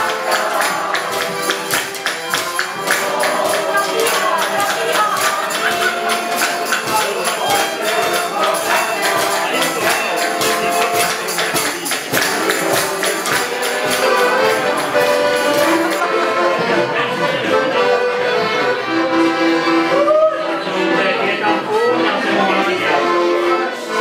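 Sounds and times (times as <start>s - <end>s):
jingling pole percussion: 0.0s - 16.0s
accordion: 0.0s - 24.0s
violin: 0.0s - 24.0s.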